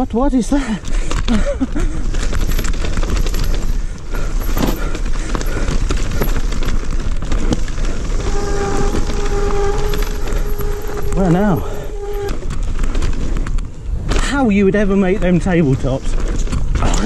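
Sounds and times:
bike rattling over stony trail: 0.0s - 17.0s
wind noise on microphone: 0.9s - 17.0s
steady whine: 7.4s - 13.4s.

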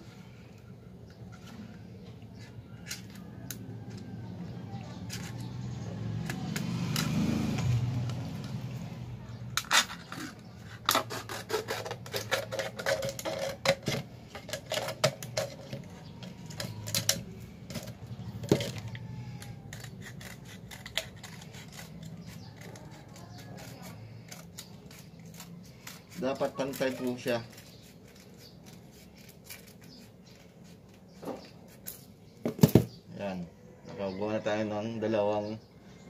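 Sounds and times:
scissors cutting plastic bottle: 9.6s - 30.1s.

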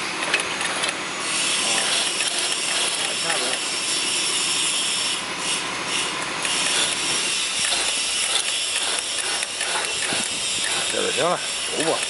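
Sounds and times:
steel sheet scraping through rollers: 0.7s - 5.6s.

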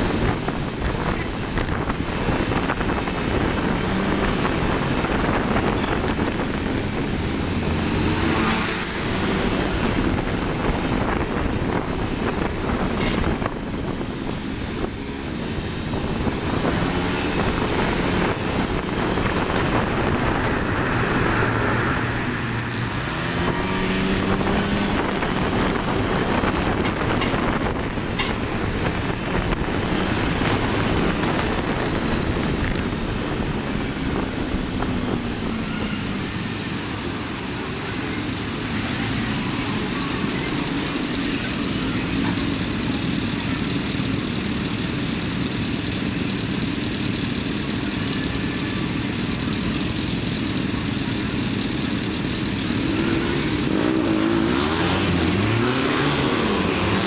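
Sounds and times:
motorcycle engine revving: 0.0s - 11.3s, 14.5s - 37.3s, 51.2s - 57.0s
road noise rushing: 0.0s - 57.0s.

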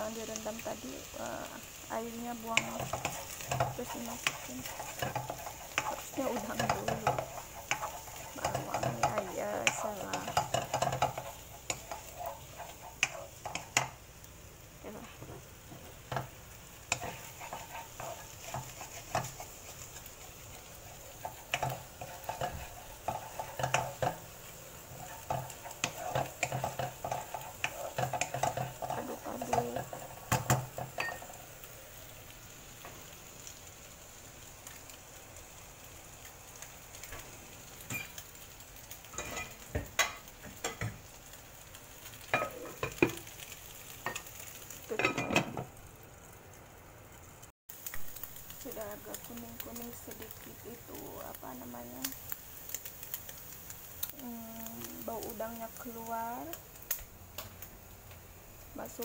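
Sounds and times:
food sizzling in a wok: 0.0s - 59.0s
spatula clicking and scraping a pan: 1.6s - 14.3s, 15.0s - 34.9s, 36.1s - 45.8s.

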